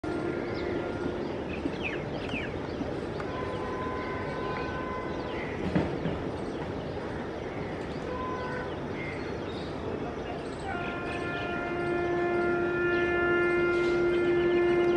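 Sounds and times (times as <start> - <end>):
distant two-tone train horn: 0.0 - 2.1, 3.2 - 5.9, 8.0 - 9.0, 10.6 - 14.9
birds chirping: 0.0 - 14.9
open-air noise: 0.0 - 14.9.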